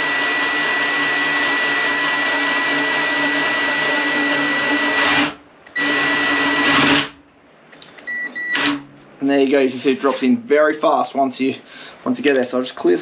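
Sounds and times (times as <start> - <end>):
cordless drill whining through foam: 0.0 - 7.2.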